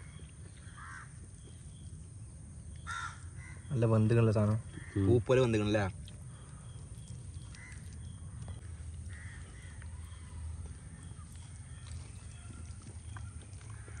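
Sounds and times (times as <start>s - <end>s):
low outdoor rumble: 0.0s - 14.0s
crows cawing: 0.6s - 1.2s, 2.8s - 3.7s, 4.7s - 5.3s, 7.4s - 14.0s.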